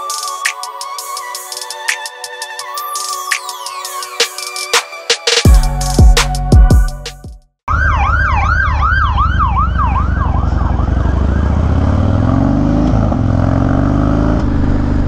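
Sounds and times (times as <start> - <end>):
police siren yelping: 7.7 - 11.8.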